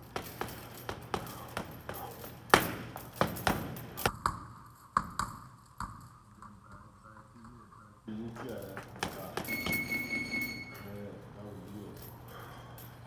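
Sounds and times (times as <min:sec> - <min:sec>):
gloves punching heavy bag: 0:00.0 - 0:04.4, 0:08.9 - 0:10.1.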